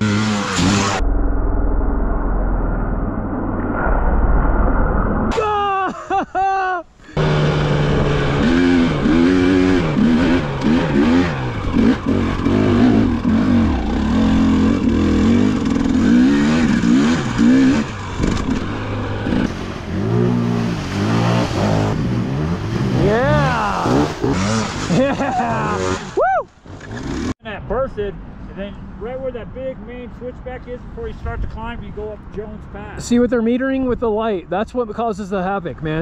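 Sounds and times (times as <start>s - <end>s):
dirt bike engine revving: 0.0s - 1.0s, 7.1s - 27.4s.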